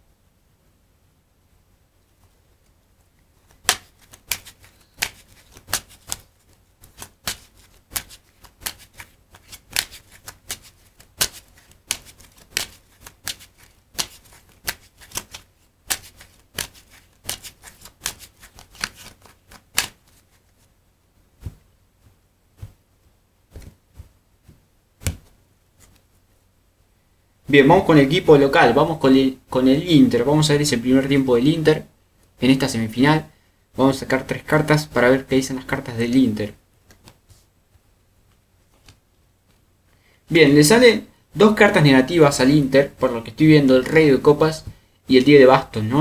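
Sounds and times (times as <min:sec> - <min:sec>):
playing cards being shuffled: 0:03.4 - 0:20.7, 0:23.5 - 0:26.2, 0:36.9 - 0:37.5, 0:38.3 - 0:39.6.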